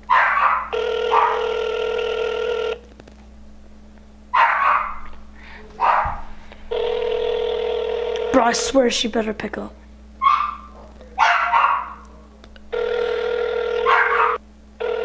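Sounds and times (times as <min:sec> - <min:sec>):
dog barking: 0:00.1 - 0:01.6, 0:04.3 - 0:05.1, 0:05.8 - 0:06.3, 0:10.2 - 0:12.0, 0:13.8 - 0:14.4
phone ringback tone: 0:00.8 - 0:02.8, 0:06.7 - 0:08.4, 0:12.7 - 0:15.0.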